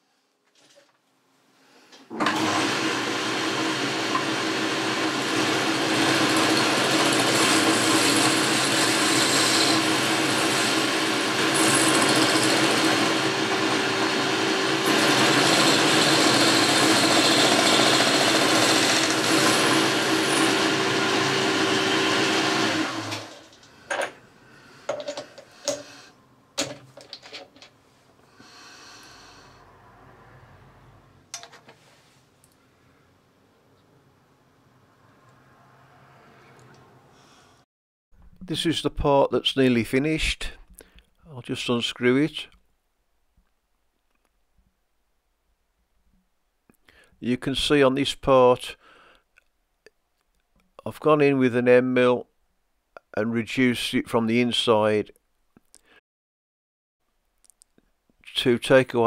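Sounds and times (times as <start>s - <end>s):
lathe running hum: 2.3s - 23.6s
clicks and knocks of handling: 24.9s - 25.8s, 26.6s - 27.8s.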